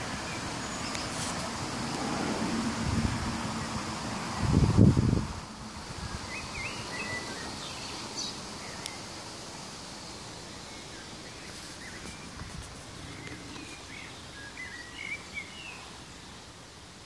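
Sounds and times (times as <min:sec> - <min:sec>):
background hiss: 0:00.0 - 0:17.0
faint click: 0:08.8 - 0:09.0.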